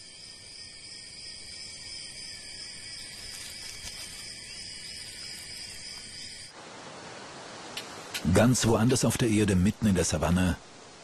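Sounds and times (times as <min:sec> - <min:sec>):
insect chorus: 0:00.0 - 0:11.0.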